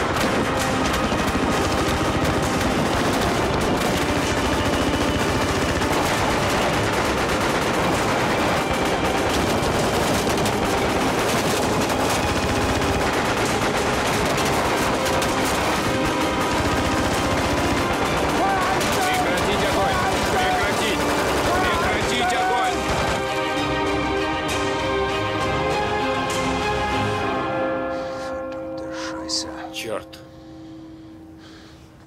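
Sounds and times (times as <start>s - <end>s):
pistol shots: 0.0s - 23.4s
rapid machine-gun fire: 0.0s - 23.6s.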